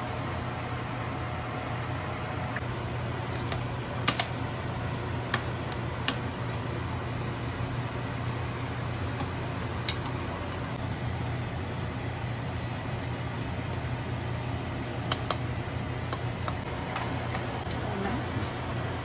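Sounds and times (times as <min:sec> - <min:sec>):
metal tongs clicking on pot: 0:09.2 - 0:10.6.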